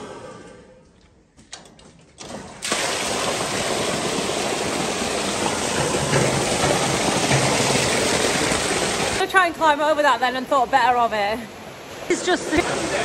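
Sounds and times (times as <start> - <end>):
water pouring from a pipe: 2.2 - 9.3.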